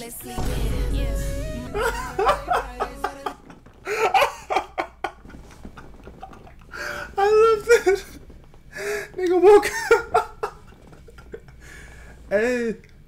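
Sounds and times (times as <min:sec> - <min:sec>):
man laughing: 0:01.7 - 0:08.2, 0:09.2 - 0:11.6.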